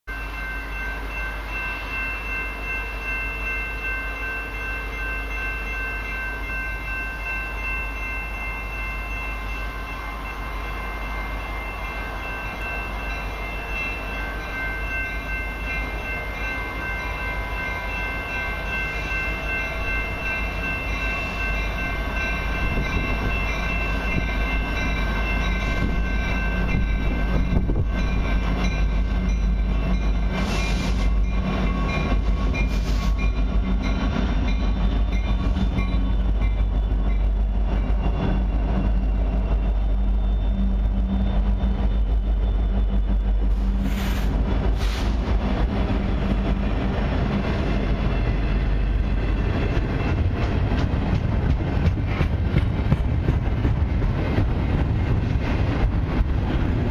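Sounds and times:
diesel locomotives rumbling: 0.1s - 56.9s.

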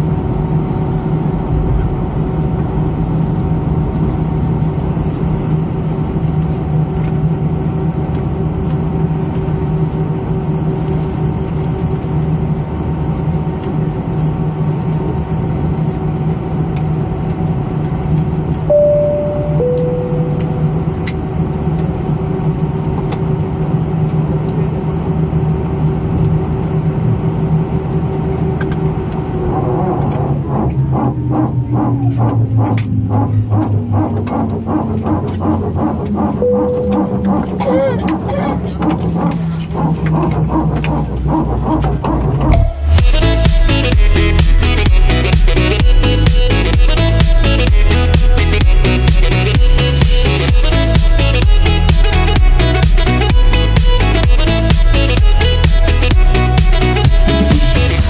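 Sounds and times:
jet engines idling drone: 0.0s - 58.0s
steady hum: 0.0s - 58.0s
two-note cabin chime: 18.7s - 21.0s, 36.4s - 37.9s, 42.5s - 43.2s.

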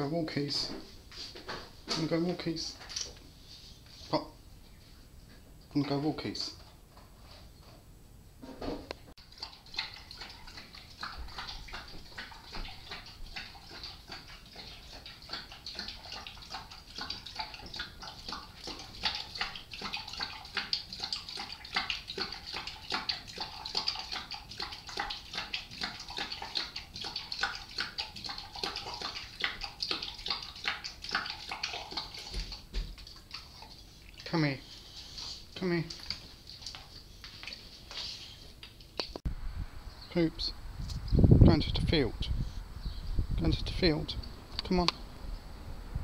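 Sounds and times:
dog eating from metal bowl: 9.2s - 38.0s.

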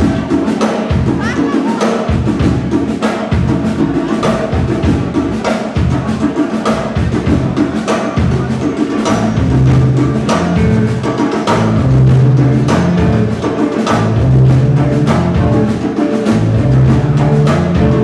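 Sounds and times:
drum kit beat: 0.0s - 18.0s
ska band playing live: 0.0s - 18.0s
bass line: 8.4s - 18.0s.

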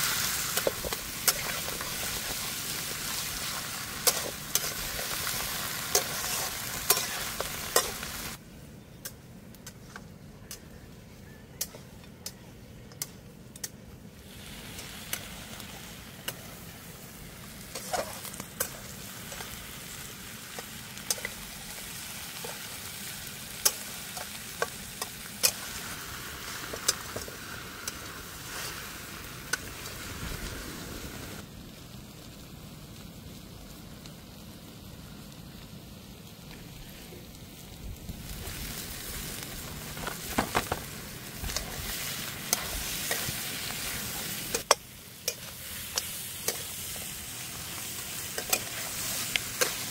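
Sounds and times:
meat sizzling in a pan: 0.0s - 8.4s, 14.2s - 31.4s, 38.1s - 49.9s.

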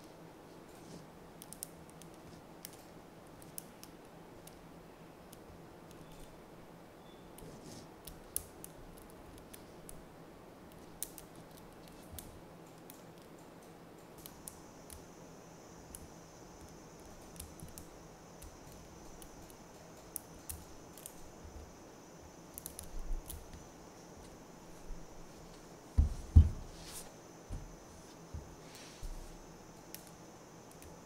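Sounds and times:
magnetic balls clicking: 10.7s - 15.1s, 15.8s - 23.8s.

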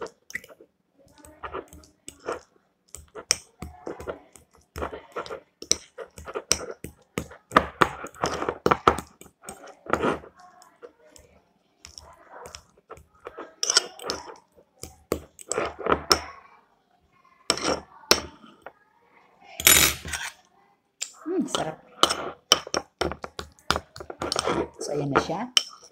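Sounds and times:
utensil clinking against bowl: 21.5s - 25.9s.

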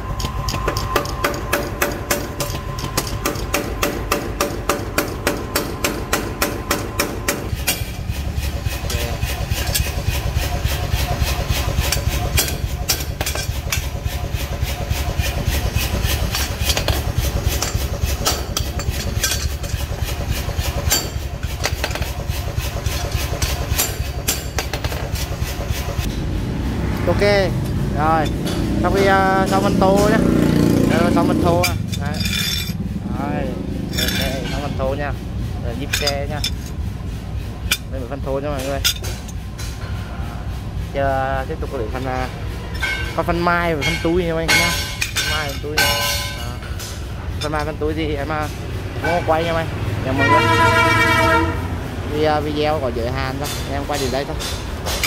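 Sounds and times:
hammer clanging on steel: 0.0s - 8.1s, 11.7s - 13.9s, 15.7s - 20.0s, 20.6s - 22.2s, 22.8s - 25.2s, 27.6s - 32.8s, 33.8s - 35.0s, 35.7s - 36.8s, 37.6s - 40.0s, 42.7s - 47.8s
low steady rumble: 0.0s - 55.0s.

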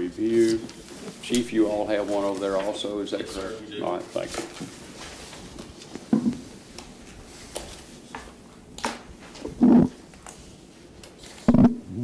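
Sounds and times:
paper rustling: 0.3s - 6.1s
sharp microphone clicks: 11.5s - 11.8s.

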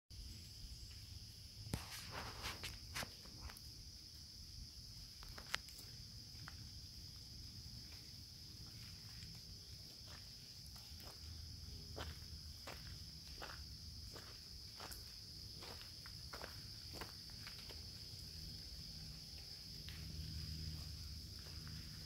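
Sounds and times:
high-pitched insect chorus: 0.1s - 22.0s.

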